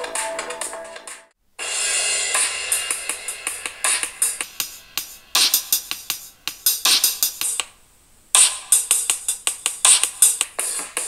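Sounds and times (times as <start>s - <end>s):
electronic music through phone speaker: 0.0s - 7.7s, 8.4s - 11.0s.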